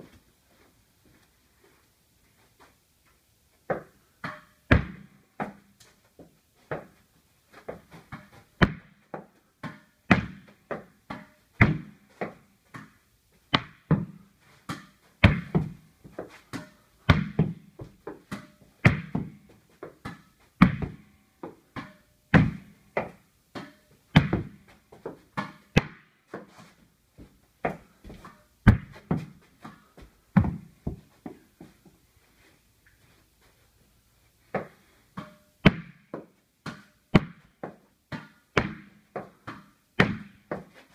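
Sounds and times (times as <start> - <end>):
ball bouncing in small room: 3.6 - 33.2, 34.4 - 40.9
tennis ball struck with racket: 3.7 - 5.6, 7.7 - 9.0, 9.6 - 26.5, 27.6 - 29.8, 30.4 - 31.4, 34.6 - 40.8.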